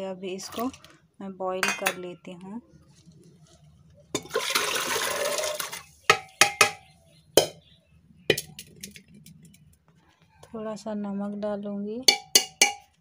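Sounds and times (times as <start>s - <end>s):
water and vegetables pouring: 0.3s - 1.0s, 4.2s - 5.9s
metal bowl knocking on cooker: 1.6s - 2.0s, 6.1s - 6.8s, 7.4s - 7.6s, 12.1s - 13.0s.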